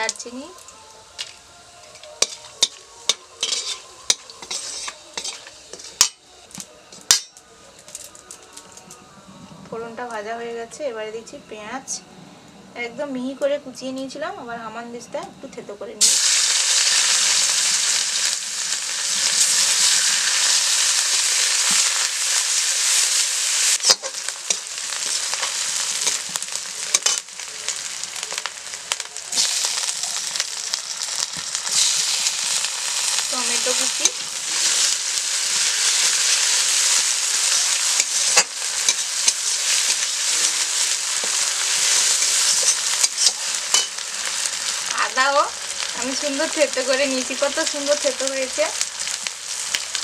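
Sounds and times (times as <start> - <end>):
food sizzling in hot oil: 0.0 - 8.9, 16.0 - 50.0
metal spatula clacking on pan: 42.6 - 44.0.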